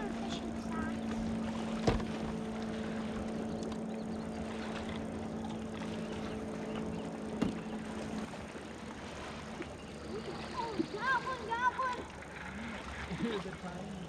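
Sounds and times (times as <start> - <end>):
electric motor humming: 0.0 - 9.4.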